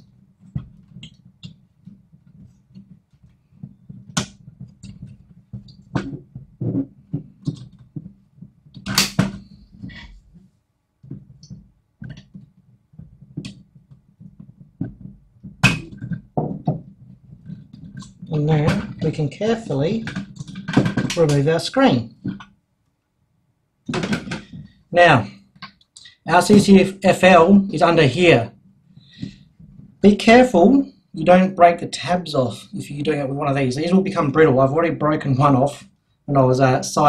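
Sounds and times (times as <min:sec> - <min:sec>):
plastic clicks and knocks: 0:00.0 - 0:10.2, 0:11.0 - 0:19.1.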